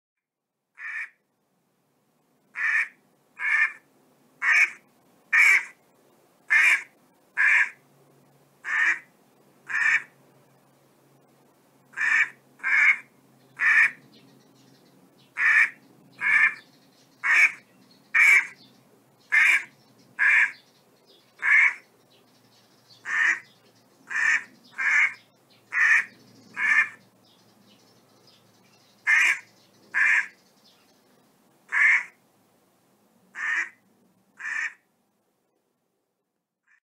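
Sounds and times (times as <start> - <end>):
duck quacking: 0.8 - 1.2, 2.6 - 3.8, 4.4 - 5.8, 6.5 - 7.8, 8.6 - 9.1, 9.7 - 10.1, 11.9 - 14.0, 15.4 - 16.6, 17.2 - 17.6, 18.2 - 18.6, 19.3 - 20.6, 21.4 - 21.8, 23.0 - 23.5, 24.1 - 27.0, 29.1 - 29.4, 30.0 - 30.3, 31.7 - 32.2, 33.4 - 33.8, 34.4 - 34.8.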